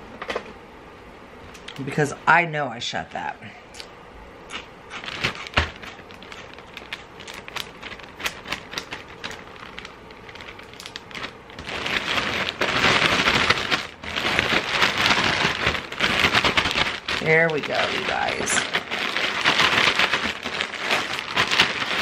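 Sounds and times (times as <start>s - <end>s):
cereal rattling in plastic bag: 4.5s - 22.0s
plastic bag crinkling: 4.5s - 22.0s.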